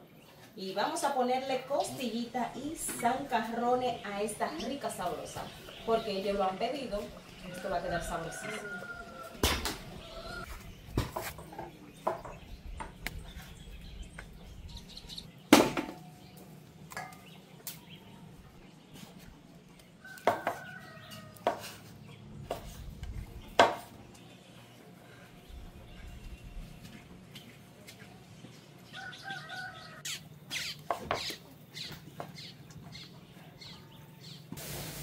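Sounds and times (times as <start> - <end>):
pots and utensils clattering: 16.9 - 17.4.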